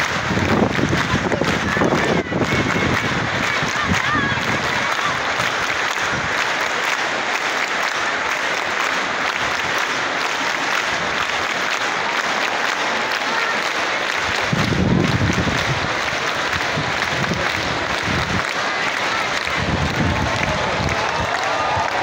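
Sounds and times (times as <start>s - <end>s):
stadium crowd applauding: 0.0s - 22.0s.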